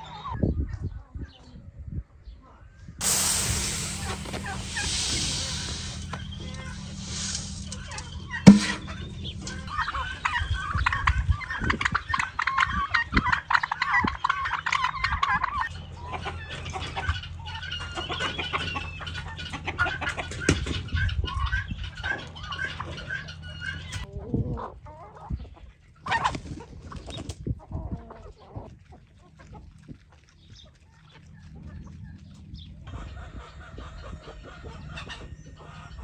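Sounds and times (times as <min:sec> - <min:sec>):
chickens clucking: 0:00.0 - 0:00.8, 0:03.0 - 0:36.0.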